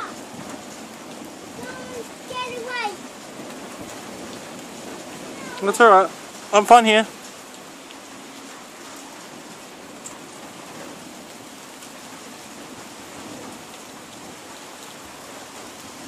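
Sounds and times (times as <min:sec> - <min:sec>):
steady rain falling: 0:00.0 - 0:16.0.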